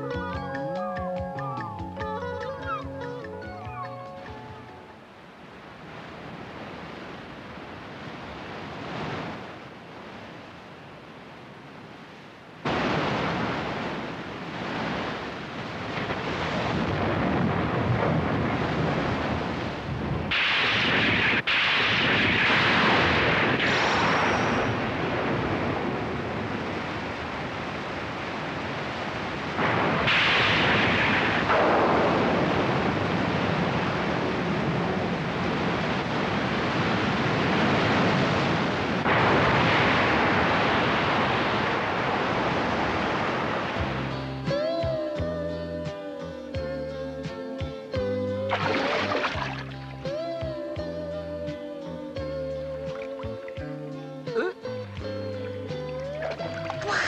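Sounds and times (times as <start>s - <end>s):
rain: 5.0s - 44.4s
crashing surf: 5.3s - 44.9s, 48.4s - 50.4s
wind rushing: 12.7s - 44.1s.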